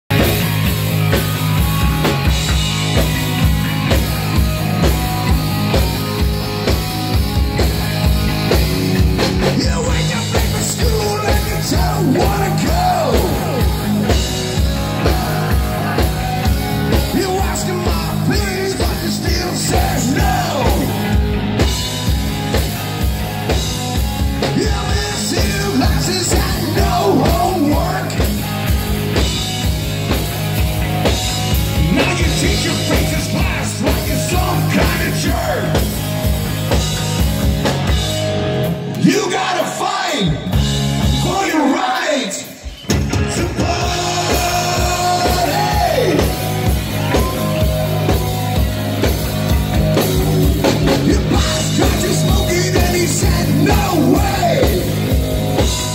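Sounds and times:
bass guitar: 0.0s - 41.8s, 42.5s - 55.9s
drum beat: 0.1s - 38.3s, 42.9s - 55.9s
electric guitar: 0.1s - 55.9s
man singing: 9.4s - 14.2s, 14.8s - 21.2s, 24.4s - 28.3s, 31.8s - 35.9s, 39.0s - 40.5s, 41.1s - 47.3s, 50.7s - 55.9s.

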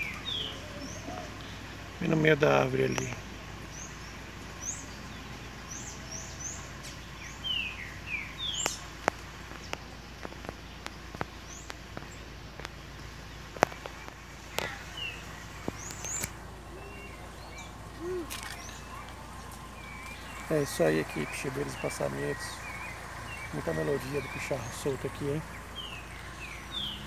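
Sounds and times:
bird singing whistled notes: 0.0s - 1.6s, 3.7s - 8.8s, 19.6s - 27.0s
sharp clicks: 15.6s - 16.4s.

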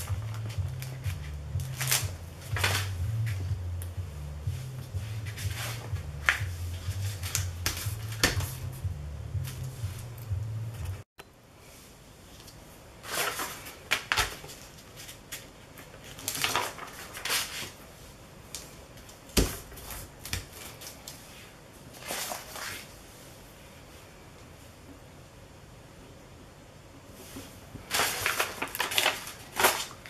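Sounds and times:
paper rustling: 0.0s - 3.5s, 13.0s - 17.9s, 22.0s - 22.9s, 27.3s - 30.0s.

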